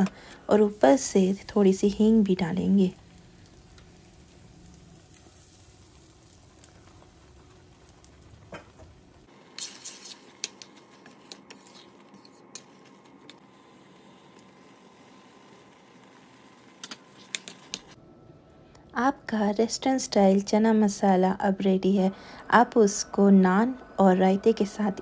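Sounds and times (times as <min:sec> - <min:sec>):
faint oil sizzling: 0:00.0 - 0:18.0.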